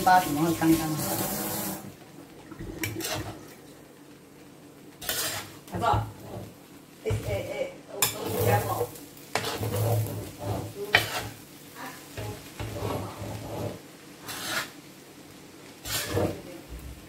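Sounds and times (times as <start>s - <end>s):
light sizzle of frying: 0.0s - 17.0s
metal spoon scraping frying pan: 3.0s - 3.4s, 5.0s - 7.3s, 8.0s - 11.4s, 12.2s - 14.8s, 15.8s - 16.5s.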